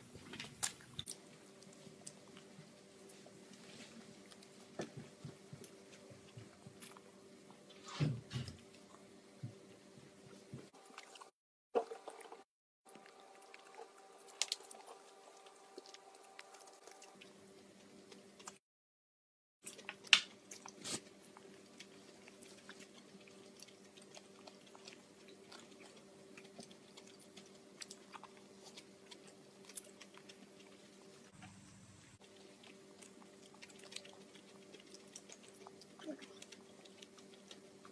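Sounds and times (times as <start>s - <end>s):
toddler chewing wetly: 8.4s - 18.6s, 19.6s - 31.3s, 32.2s - 37.9s.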